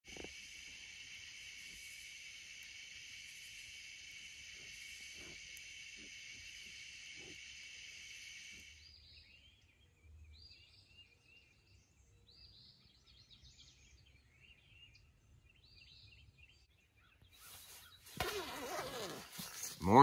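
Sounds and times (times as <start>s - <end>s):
high-pitched insect trill: 0.1s - 8.9s
birds chirping: 0.1s - 20.0s
quiet bird warbling: 4.5s - 9.8s, 16.3s - 19.8s.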